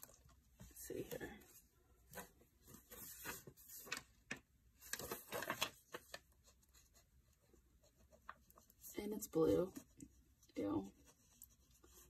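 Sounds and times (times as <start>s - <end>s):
paper rustling: 2.1s - 7.0s.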